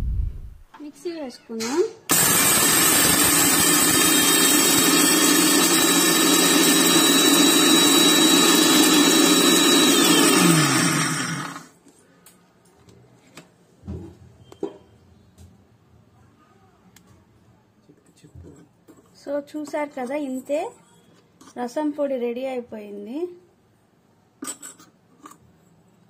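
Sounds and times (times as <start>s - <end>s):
mixer grinder grinding spices: 2.1s - 11.8s.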